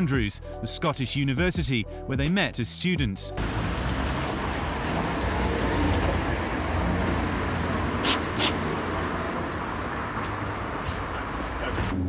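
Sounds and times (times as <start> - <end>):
road traffic noise: 3.4 - 12.0.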